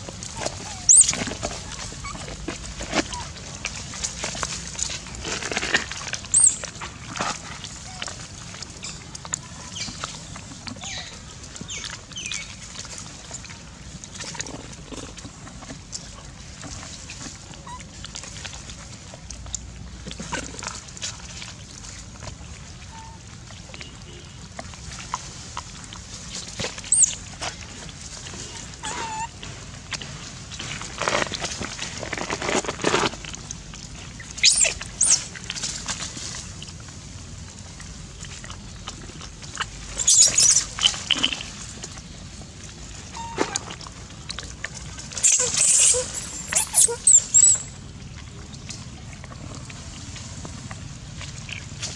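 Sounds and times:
crackles in dry leaf litter: 0.0 - 51.9
faint monkey squeaks: 0.4 - 2.3, 6.3 - 6.6, 10.8 - 12.5, 17.6 - 17.8, 26.9 - 27.2, 28.5 - 29.4, 34.4 - 35.3, 40.0 - 41.5, 43.2 - 43.5, 45.2 - 47.8.

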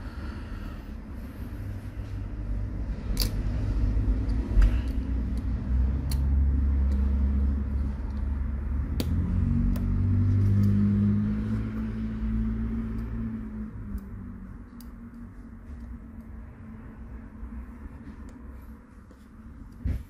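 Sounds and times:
steady low rumble: 0.0 - 20.0
sharp plastic clicks: 8.9 - 9.9.

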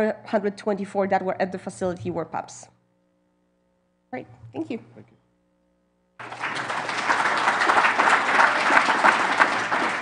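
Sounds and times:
audience applauding: 6.2 - 10.0.

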